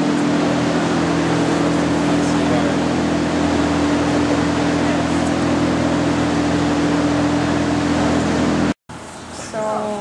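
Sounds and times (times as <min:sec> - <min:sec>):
ventilation fan humming: 0:00.0 - 0:10.0.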